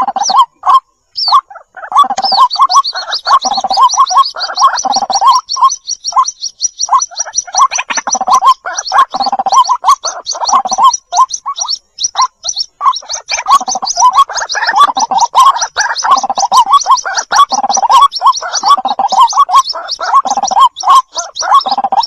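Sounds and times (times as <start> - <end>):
low gurgling calls: 0.0 - 6.2, 6.9 - 22.0
chicks peeping: 0.0 - 22.0.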